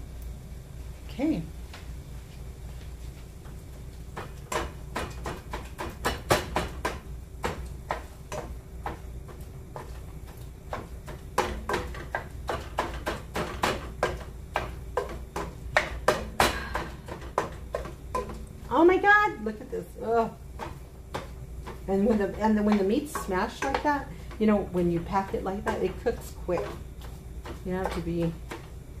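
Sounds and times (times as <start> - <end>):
masher knocking meat in a pot: 4.2 - 19.3, 20.0 - 29.0.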